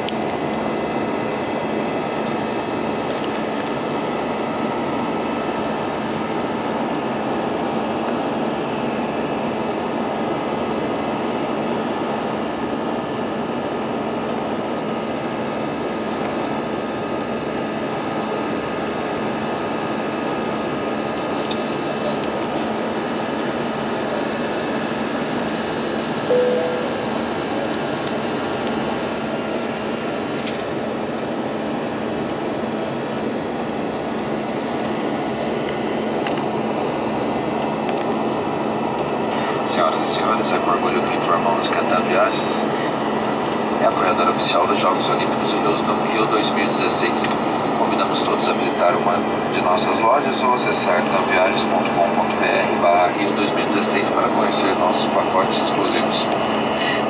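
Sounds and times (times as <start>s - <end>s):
jet engines rushing in cabin: 0.0s - 57.0s
faint hum: 21.4s - 30.6s
short single tone: 26.3s - 28.0s.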